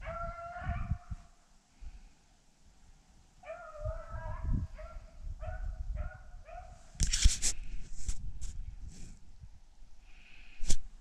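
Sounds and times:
hounds baying and yelping: 0.0 - 1.0, 3.4 - 6.8
rustling and crunching: 6.9 - 9.2.

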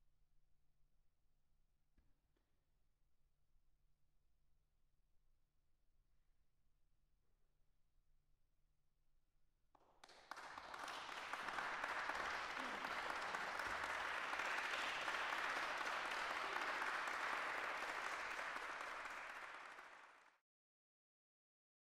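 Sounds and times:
audience applauding: 10.0 - 20.4.

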